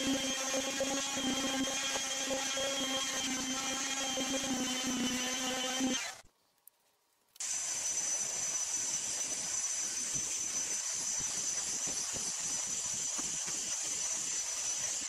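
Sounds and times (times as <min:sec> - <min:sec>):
handheld vacuum cleaner running: 0:00.0 - 0:06.2.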